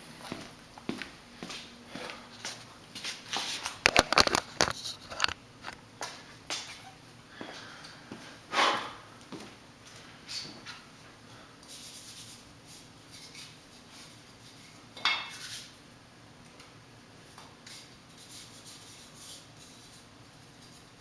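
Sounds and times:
hands rubbing chalk: 11.6 - 15.8, 17.6 - 21.0.

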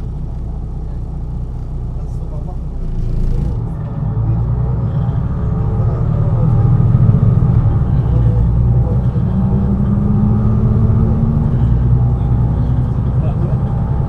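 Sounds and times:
diesel bus engine droning: 0.0 - 14.0.

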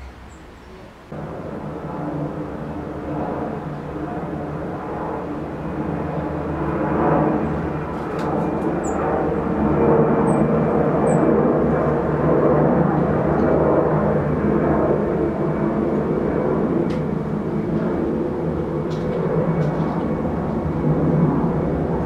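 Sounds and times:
faint bird chirps: 0.0 - 0.9
low engine-like drone: 0.0 - 22.0.

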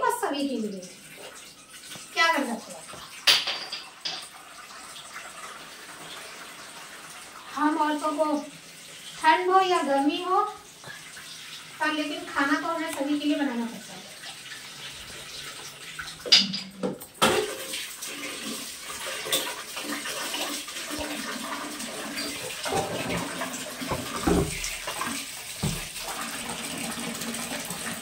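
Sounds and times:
tap water splashing into bowl: 2.9 - 4.4, 16.0 - 21.6, 22.2 - 26.6
knocks and clatters: 23.9 - 24.7.

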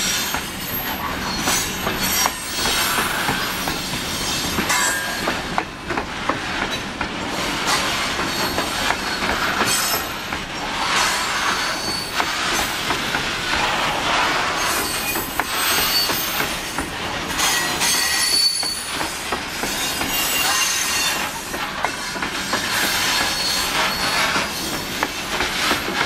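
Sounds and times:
high wheel squeals: 0.0 - 5.4, 7.7 - 12.8, 14.4 - 16.8, 17.4 - 25.2
train wheels rumbling on rail: 0.0 - 26.0.

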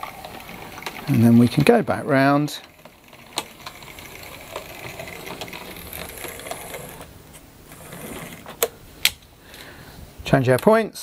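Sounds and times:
model train motor whirring: 0.0 - 7.1, 7.7 - 8.6.

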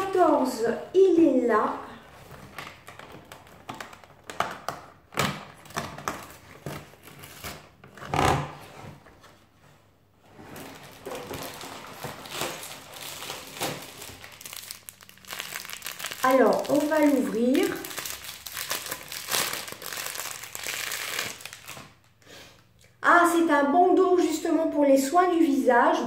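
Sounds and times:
cardboard tearing and rustling: 5.1 - 9.0, 10.4 - 22.0.

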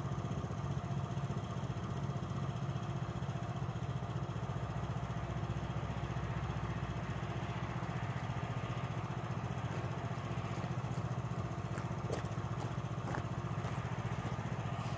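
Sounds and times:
small engine idling: 0.0 - 14.9.

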